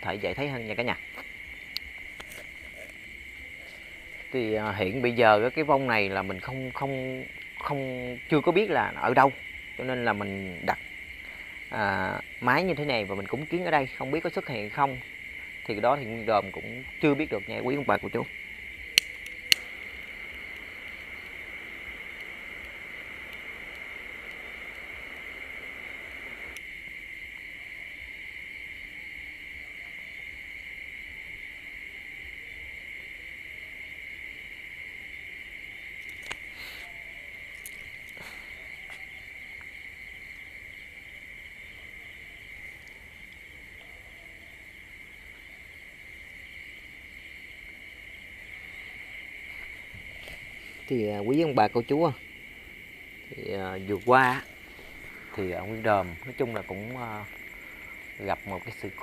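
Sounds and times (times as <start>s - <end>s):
crickets chirring: 0.0s - 59.0s
faint clicks: 1.1s - 3.0s, 18.9s - 26.7s, 36.0s - 39.0s.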